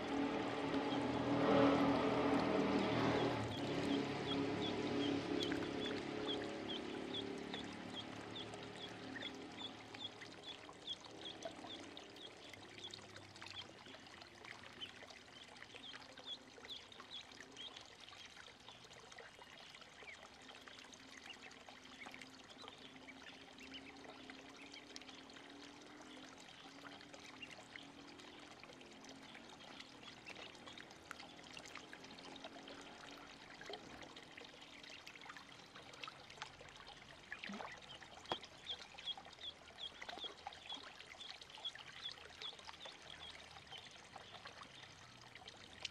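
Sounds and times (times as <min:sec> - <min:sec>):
ducklings splashing in water: 0:00.0 - 0:45.9
ducklings peeping: 0:03.0 - 0:13.7, 0:22.6 - 0:24.9.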